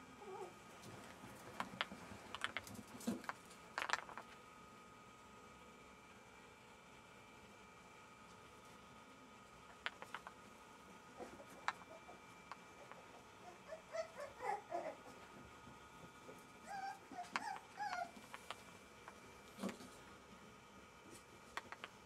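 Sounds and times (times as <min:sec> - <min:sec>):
puppy whining: 0:00.1 - 0:00.6, 0:11.2 - 0:15.4, 0:16.3 - 0:18.5.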